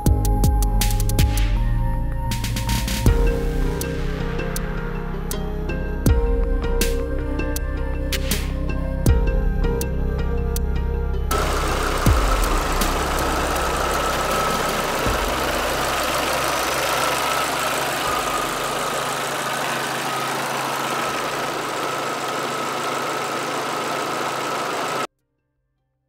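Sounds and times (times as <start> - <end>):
car engine idling: 11.3 - 25.1.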